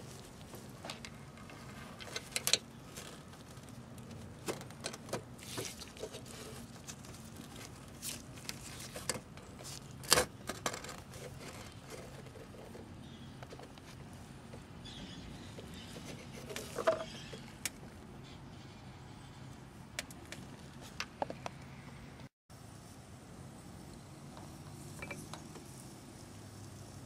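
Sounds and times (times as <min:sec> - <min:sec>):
rustling: 0:00.0 - 0:17.6
parts clicking and knocking: 0:00.6 - 0:05.4.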